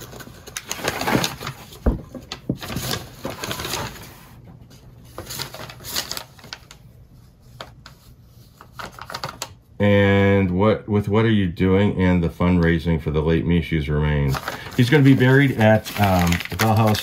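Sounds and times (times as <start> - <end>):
tissue paper crinkling: 0.0 - 4.3, 5.0 - 9.5, 14.3 - 17.0.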